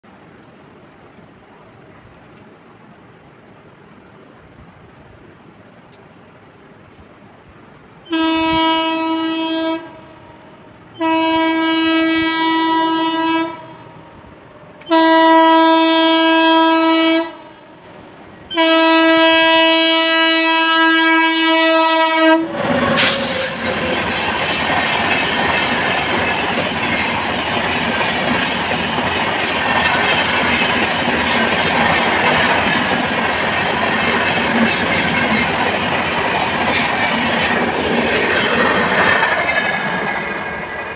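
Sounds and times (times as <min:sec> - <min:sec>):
train wheels rumbling on rails: 0:00.0 - 0:40.9
train horn blasts: 0:08.0 - 0:14.1, 0:14.8 - 0:17.9, 0:18.5 - 0:24.0
wheels clacking over rail joints: 0:22.2 - 0:40.9.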